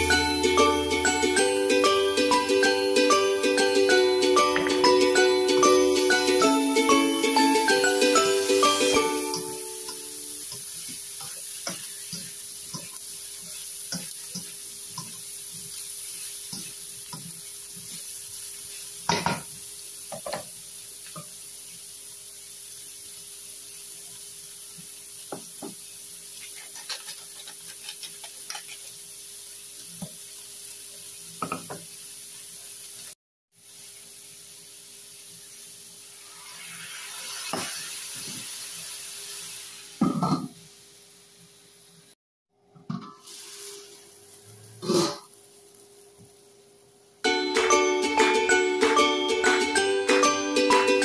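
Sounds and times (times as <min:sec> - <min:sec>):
meat sizzling in a wok: 0:00.0 - 0:42.2, 0:43.2 - 0:51.0
spatula scraping pan: 0:26.4 - 0:29.0.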